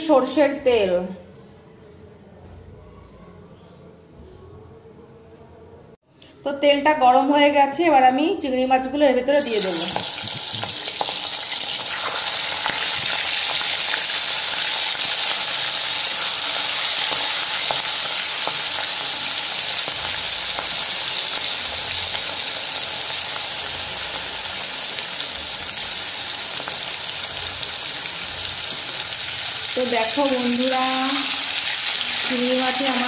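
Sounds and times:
prawns sizzling in hot oil: 9.3s - 33.0s.

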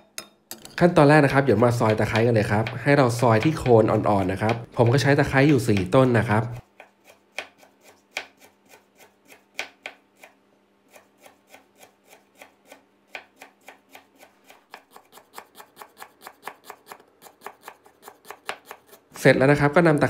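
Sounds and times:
knife tapping on cutting board: 1.7s - 6.0s, 9.6s - 10.0s.

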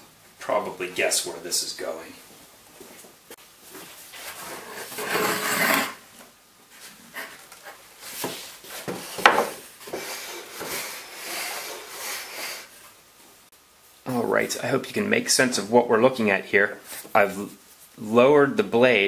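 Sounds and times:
wood scraping on wood: 4.1s - 6.0s, 6.8s - 12.8s
wooden knocks: 8.9s - 9.6s.

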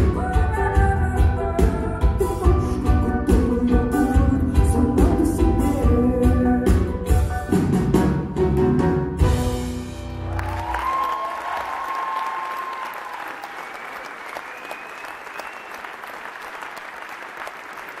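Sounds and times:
audience applause: 10.2s - 18.0s.

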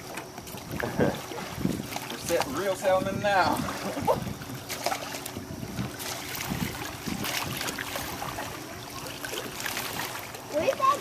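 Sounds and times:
oars pulling through water: 0.0s - 11.0s
short water splashes: 0.0s - 11.0s
steady wash of water: 0.0s - 11.0s.

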